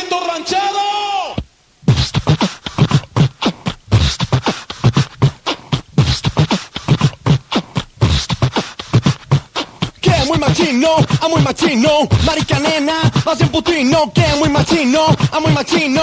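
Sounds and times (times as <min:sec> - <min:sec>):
drum machine beat: 0:01.9 - 0:16.0.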